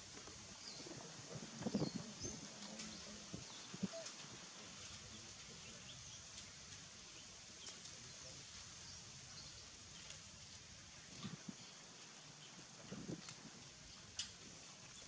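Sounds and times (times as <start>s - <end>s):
faint steady hiss: 0.0s - 15.0s
soft ticks: 13.2s - 14.5s.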